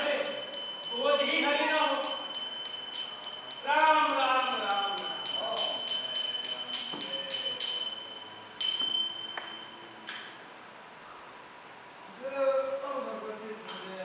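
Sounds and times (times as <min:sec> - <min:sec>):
single bell strikes: 0:00.0 - 0:10.4
small metal bells jingling: 0:00.0 - 0:10.4, 0:13.6 - 0:14.0.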